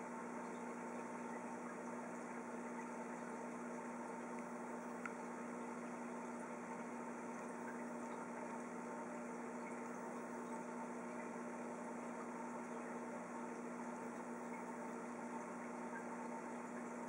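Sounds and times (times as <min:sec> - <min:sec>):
air bubbles bubbling in water: 0:00.0 - 0:17.0
aquarium equipment humming: 0:00.0 - 0:17.0.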